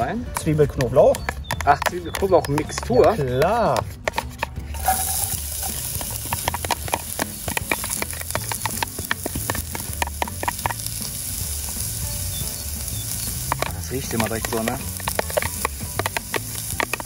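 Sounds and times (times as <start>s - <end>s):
onion and garlic sizzling in oil: 4.7s - 17.0s
crackling pops: 4.8s - 17.0s.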